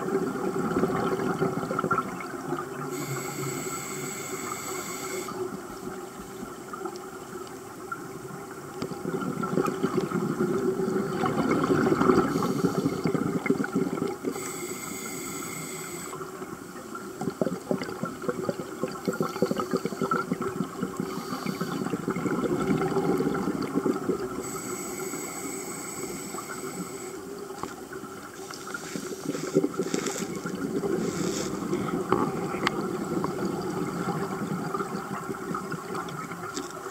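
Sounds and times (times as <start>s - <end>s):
gurgling exhaust bubbles: 0.0s - 3.4s, 8.7s - 14.4s, 16.1s - 24.9s, 28.3s - 36.9s
hissing regulator in-breaths: 2.9s - 5.4s, 12.3s - 13.2s, 14.3s - 16.2s, 21.0s - 22.0s, 24.4s - 27.3s, 31.0s - 32.0s.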